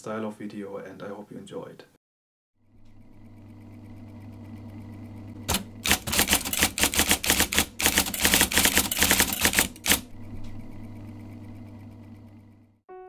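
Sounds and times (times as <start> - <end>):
electric typewriter motor hum: 2.6 - 12.8
typewriter typing strikes: 5.5 - 10.1.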